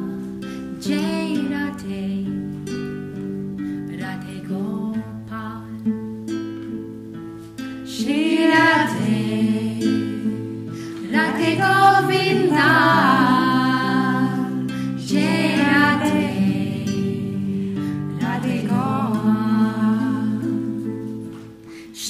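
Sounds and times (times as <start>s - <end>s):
held accompanying notes: 0.0s - 22.0s
people singing devotional song: 8.0s - 20.8s.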